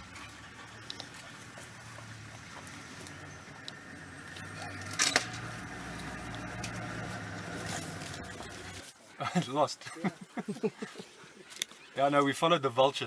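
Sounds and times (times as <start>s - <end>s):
vehicle engine idling: 0.0s - 8.9s
dogs tearing and crunching carcass: 0.0s - 9.0s
sharp snaps and crackle: 0.8s - 9.0s, 11.5s - 11.9s.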